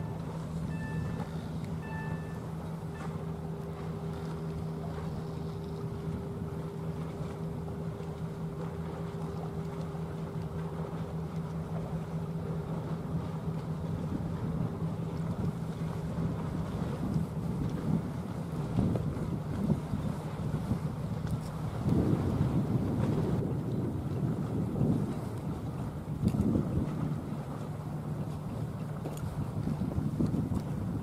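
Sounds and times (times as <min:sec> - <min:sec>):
motor boat engine drone: 0:00.0 - 0:31.0
wind buffeting microphone: 0:11.8 - 0:31.0.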